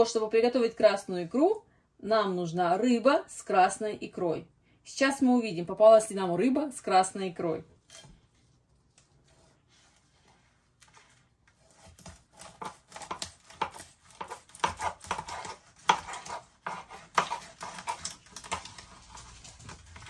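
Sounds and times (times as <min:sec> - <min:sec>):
knife sawing through fish: 0:11.6 - 0:19.7.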